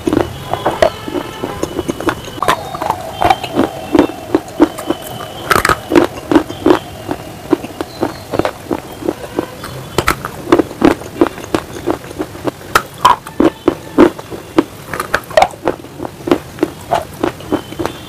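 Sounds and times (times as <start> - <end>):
crunchy chewing: 0.0 - 18.0.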